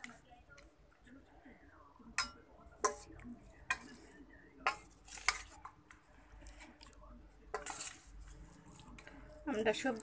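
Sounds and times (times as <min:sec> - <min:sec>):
spoon clinking against plate: 0:02.2 - 0:04.0.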